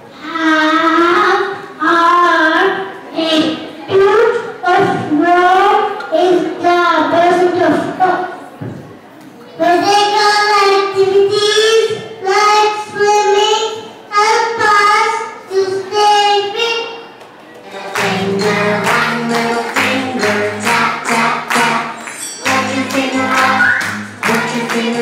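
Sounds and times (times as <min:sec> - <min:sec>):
child singing through microphone: 0:00.0 - 0:25.0
recorded song with beat and bass: 0:17.8 - 0:25.0.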